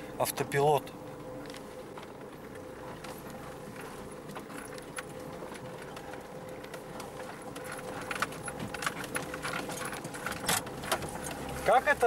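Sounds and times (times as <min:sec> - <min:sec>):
car engine hum: 0:00.0 - 0:12.0
car body rattling and knocking: 0:07.1 - 0:12.0.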